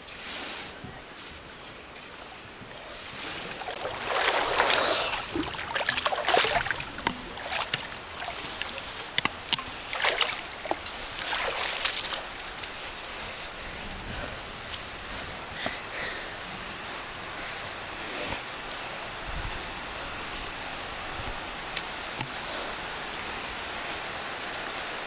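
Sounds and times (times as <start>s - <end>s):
pool water splashing: 1.7s - 13.8s
water slaps: 3.3s - 13.0s.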